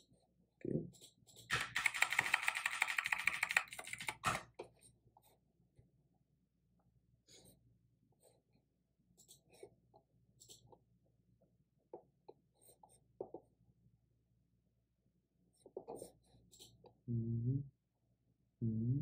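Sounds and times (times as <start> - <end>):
computer keyboard typing: 1.5 - 4.4.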